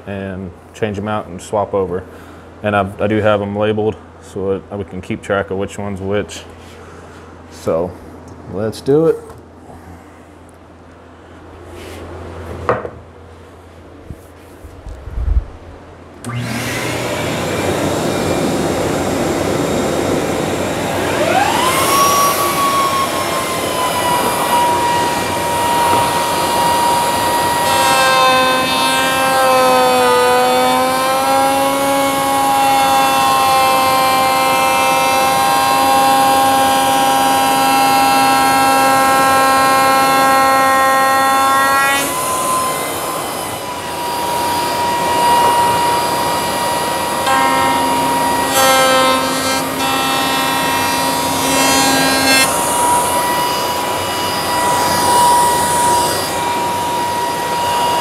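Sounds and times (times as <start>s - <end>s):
steady rushing noise: 14.7s - 15.9s
router bit cutting wood: 16.2s - 58.0s
router motor whining: 16.2s - 58.0s.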